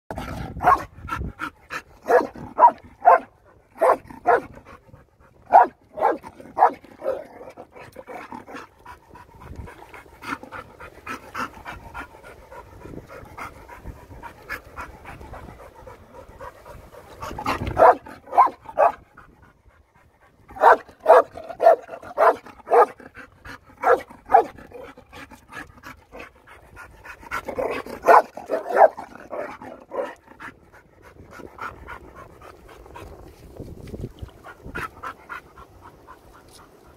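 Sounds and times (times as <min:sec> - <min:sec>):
dog barking: 0:00.6 - 0:00.9, 0:02.1 - 0:04.5, 0:05.5 - 0:07.2, 0:17.8 - 0:19.0, 0:20.6 - 0:23.0, 0:23.8 - 0:24.5, 0:28.0 - 0:30.1.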